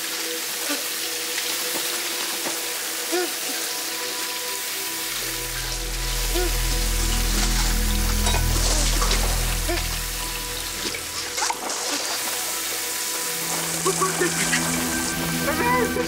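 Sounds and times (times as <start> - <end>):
water spraying from hose: 0.0 - 16.0
held music tones: 4.5 - 16.0
deep bass drone: 5.1 - 11.8, 13.3 - 16.0.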